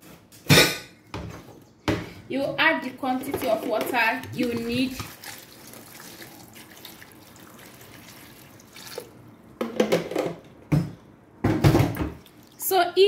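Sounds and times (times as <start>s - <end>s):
water pouring into metal pot: 4.4s - 9.2s.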